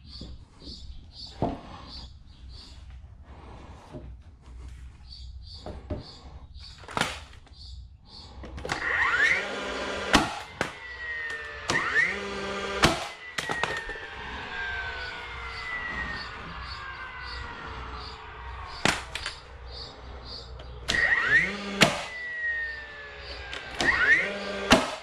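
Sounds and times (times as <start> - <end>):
nailer motor whine: 8.3 - 25.0
nailer firing bang: 9.8 - 14.0, 18.6 - 19.5, 20.9 - 22.8, 23.5 - 25.0.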